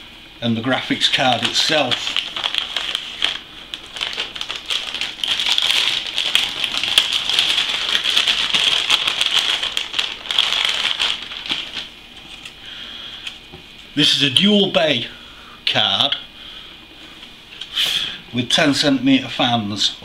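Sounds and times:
plastic bag crinkling and rustling: 0.9s - 12.6s.

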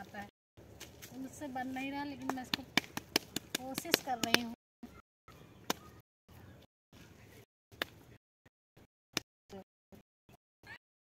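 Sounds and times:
hands slapping wet dung: 2.2s - 4.6s.

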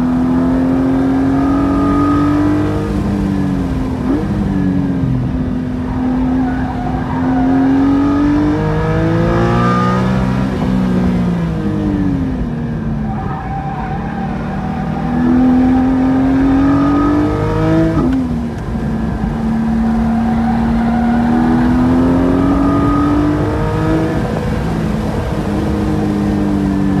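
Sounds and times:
car engine accelerating: 0.0s - 27.0s.

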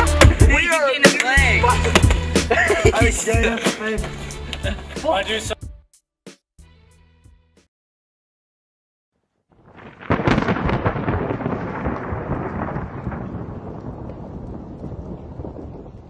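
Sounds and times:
thunder rumbling and crashing: 9.6s - 16.0s.

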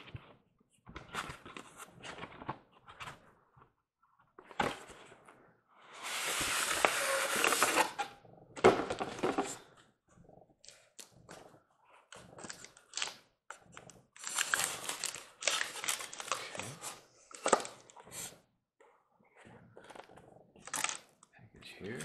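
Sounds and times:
foam lid scraping box: 6.0s - 8.1s
crinkling rustles: 13.8s - 18.0s.

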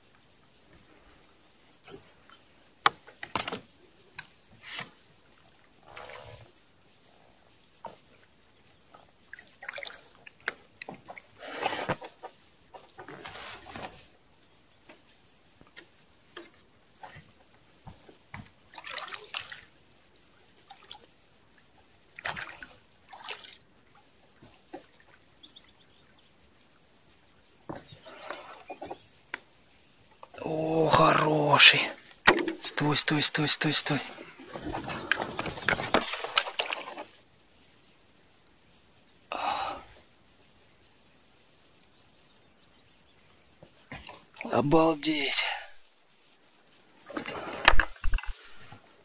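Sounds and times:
water splashing and dripping: 1.8s - 14.2s, 14.8s - 37.2s.

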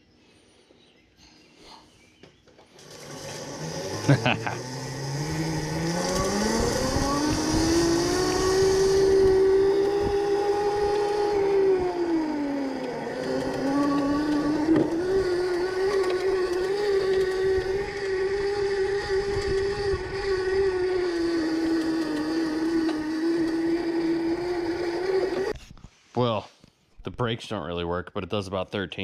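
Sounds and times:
electric motor whine: 2.7s - 25.6s.

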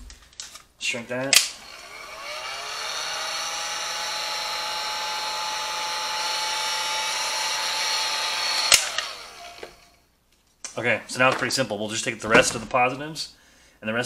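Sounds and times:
heat gun fan whining: 1.3s - 10.0s.

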